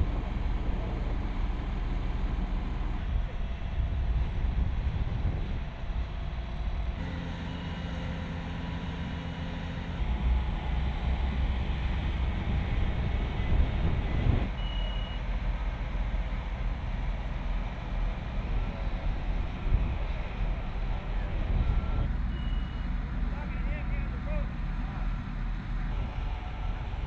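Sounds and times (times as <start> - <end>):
construction machinery rumbling: 0.0 - 27.0
engine hum: 0.0 - 27.0
short high beep: 14.6 - 15.2, 21.7 - 22.8.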